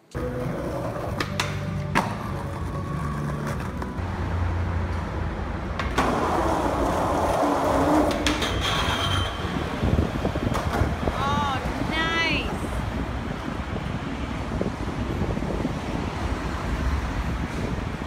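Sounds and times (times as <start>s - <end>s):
skateboard wheels on concrete: 0.0s - 18.0s
skateboard clacks: 0.2s - 4.0s, 5.7s - 9.3s
skateboard grinding on metal: 5.8s - 9.8s.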